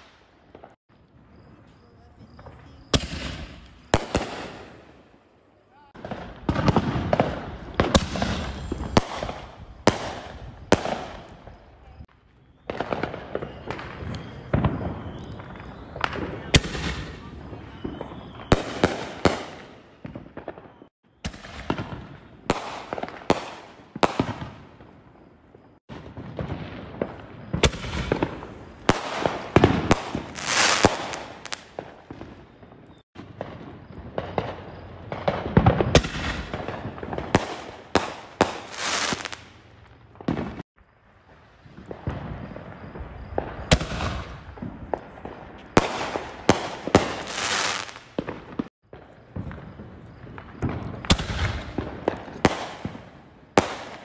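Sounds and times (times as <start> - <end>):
firework crackling and popping: 0.0 - 54.0
firework launch and burst bangs: 2.8 - 5.0, 6.0 - 11.5, 25.9 - 40.6, 41.6 - 54.0.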